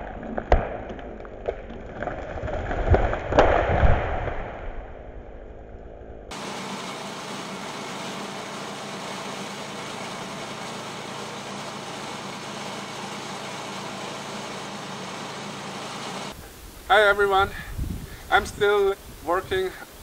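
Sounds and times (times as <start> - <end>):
sawmill engine running: 6.3 - 16.5.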